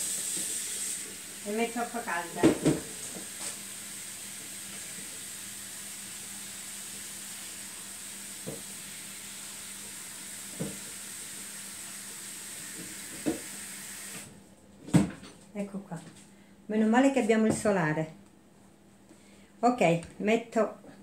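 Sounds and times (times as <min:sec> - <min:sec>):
water running from tap: 0:00.0 - 0:14.3.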